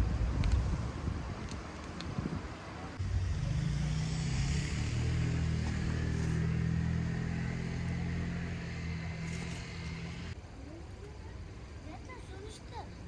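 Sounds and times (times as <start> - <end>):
vehicle engine running: 3.0 - 10.4.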